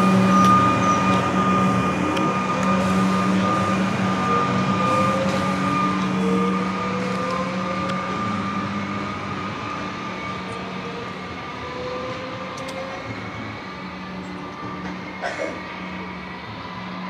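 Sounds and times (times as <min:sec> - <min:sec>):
electric train pulling away: 0:00.0 - 0:17.0
train motor whine rising: 0:00.0 - 0:17.0.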